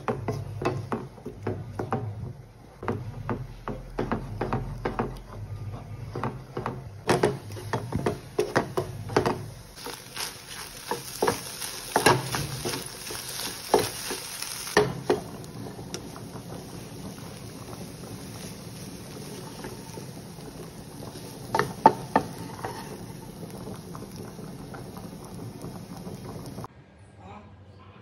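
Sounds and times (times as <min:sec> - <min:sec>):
eggs sizzling in a pan: 0:00.0 - 0:26.7
spatula scraping a pan: 0:02.8 - 0:20.2, 0:21.0 - 0:24.2.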